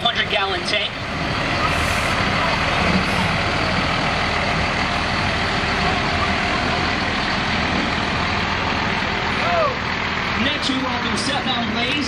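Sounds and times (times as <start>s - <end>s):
heavy truck engine running: 0.0s - 12.0s.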